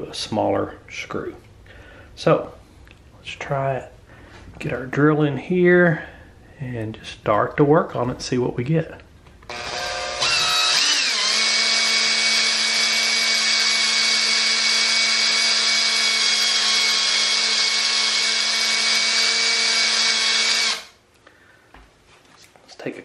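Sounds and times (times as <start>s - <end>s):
electric drill whine: 9.5s - 21.0s.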